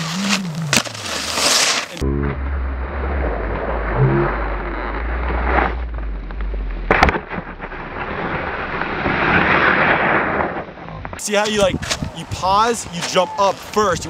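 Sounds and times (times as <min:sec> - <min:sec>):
skis sliding over snow: 0:00.0 - 0:02.0, 0:11.2 - 0:14.0
low rumble: 0:02.0 - 0:12.2
wind buffeting microphone: 0:11.1 - 0:13.0.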